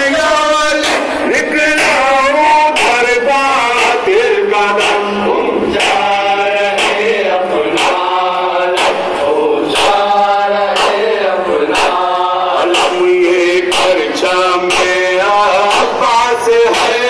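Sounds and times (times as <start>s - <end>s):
men chanting a lament: 0.0s - 17.0s
sharp beat: 0.0s - 17.0s.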